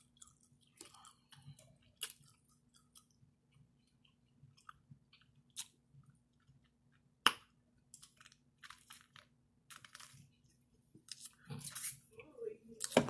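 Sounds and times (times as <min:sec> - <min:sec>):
wet chewing: 0:00.0 - 0:10.3.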